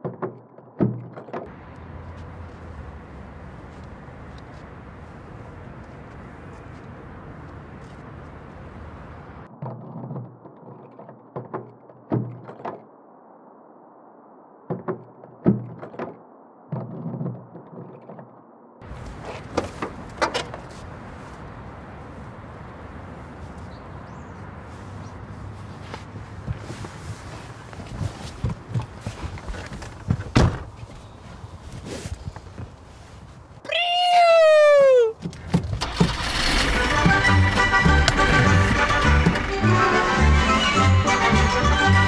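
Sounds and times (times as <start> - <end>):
car door opening clicks: 35.3 - 39.6.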